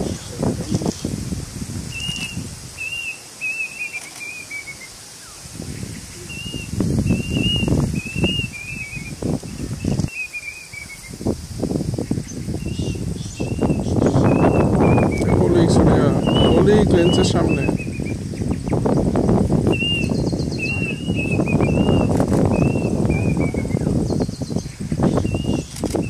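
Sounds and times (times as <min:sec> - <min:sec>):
wind buffeting microphone: 0:00.0 - 0:26.0
cuckoo whistling song: 0:01.9 - 0:05.4, 0:06.1 - 0:09.2, 0:12.6 - 0:15.4, 0:16.2 - 0:18.2, 0:19.7 - 0:23.9.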